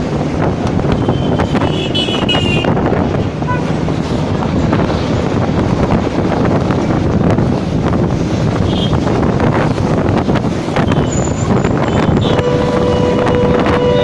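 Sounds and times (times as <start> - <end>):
road traffic noise: 0.0 - 14.0
wind rumbling on microphone: 0.0 - 14.0
vehicle horn: 1.0 - 2.8, 3.5 - 3.8, 11.8 - 14.0.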